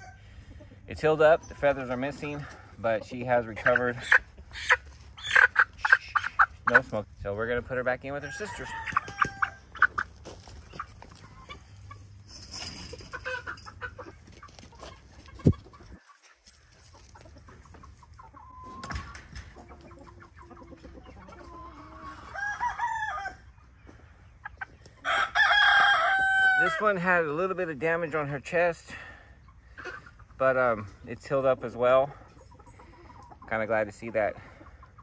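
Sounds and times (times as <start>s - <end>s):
chickens clucking: 0.0s - 35.0s
rooster crowing: 8.2s - 9.6s, 22.1s - 23.5s, 25.0s - 26.8s.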